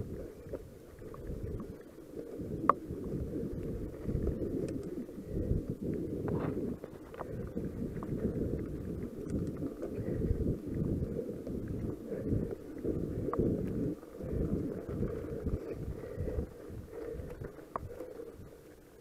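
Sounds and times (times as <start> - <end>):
wind buffeting microphone: 0.0 - 18.6
bike tyres on dirt trail: 0.0 - 19.0
bike clicks and rattles: 8.1 - 10.5.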